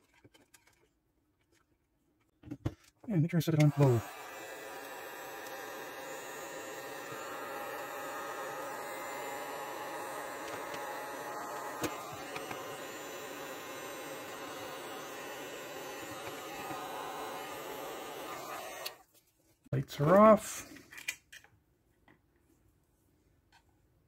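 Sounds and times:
heat gun fan whirring: 3.5 - 19.0.

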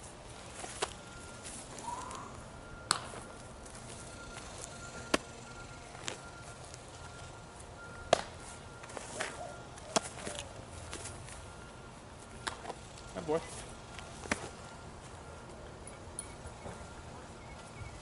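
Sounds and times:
baseball smacking into a glove: 8.1 - 8.4.

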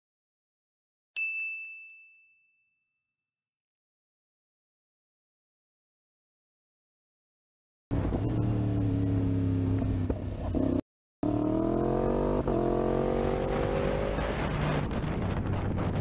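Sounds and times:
motorcycle engine accelerating: 7.9 - 16.0
wind rushing on microphone: 14.4 - 16.0.

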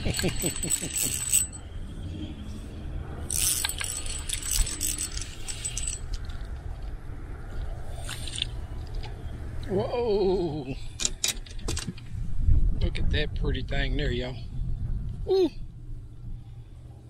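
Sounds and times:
fishing reel whirring and clicking: 0.1 - 1.6, 3.3 - 6.2
wind rumble on microphone: 10.8 - 17.0.

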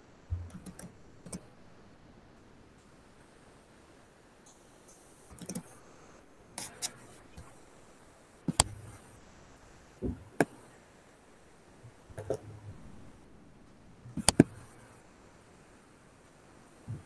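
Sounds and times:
clicks and light knocks: 13.6 - 14.9.

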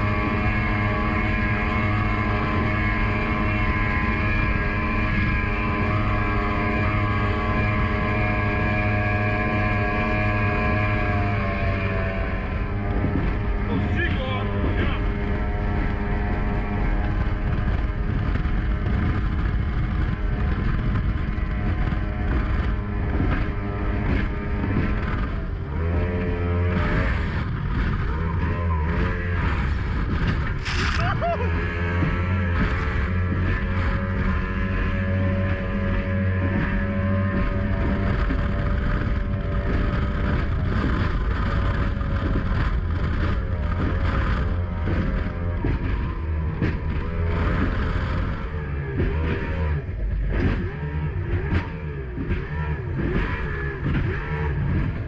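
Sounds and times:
hull slapping water: 0.0 - 55.0
outboard motor running flat out: 0.0 - 55.0
water and wind rushing: 0.0 - 55.0.

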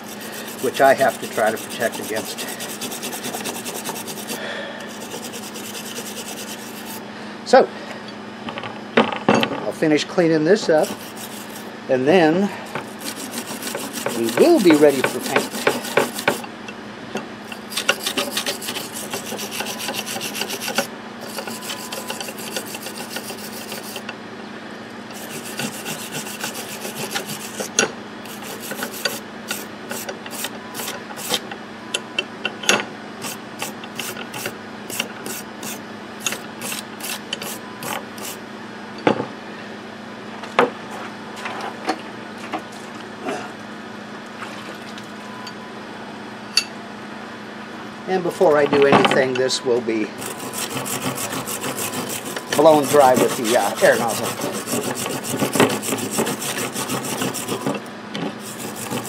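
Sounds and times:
wire brush scraping metal: 0.0 - 7.0, 10.8 - 11.7, 12.7 - 16.5, 17.5 - 24.1, 25.1 - 31.4, 33.2 - 38.4, 50.2 - 57.8, 58.4 - 59.0.

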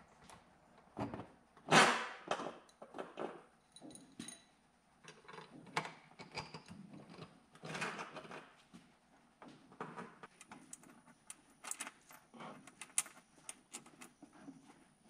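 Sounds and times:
door hardware clinking and rattling: 10.3 - 14.1.

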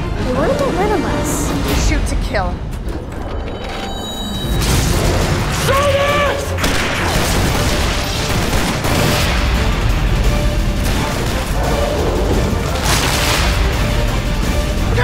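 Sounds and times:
action trailer music: 0.0 - 15.0
bursts of gunfire: 6.5 - 9.8, 10.8 - 13.8.

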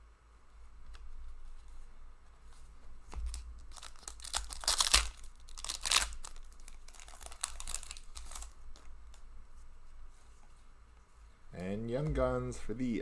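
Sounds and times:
cards rustling: 2.4 - 9.3
wrapper crinkling and tearing: 3.2 - 8.9.

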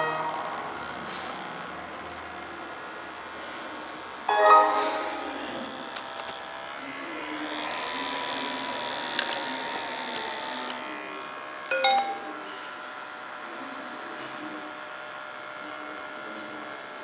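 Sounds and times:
laptop fan and hard drive whirring: 0.0 - 17.0
computer system chime: 4.3 - 5.4.

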